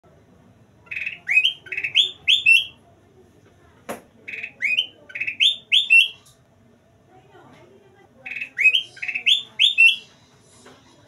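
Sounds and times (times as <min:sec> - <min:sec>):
bulbul singing whistled notes: 0:08.3 - 0:10.1.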